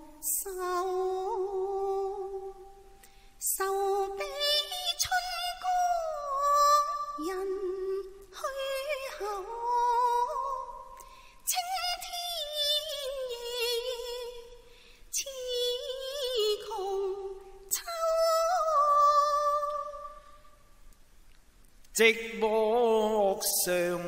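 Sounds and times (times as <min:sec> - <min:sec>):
opera singing high voice: 0:00.0 - 0:20.5, 0:21.9 - 0:24.0.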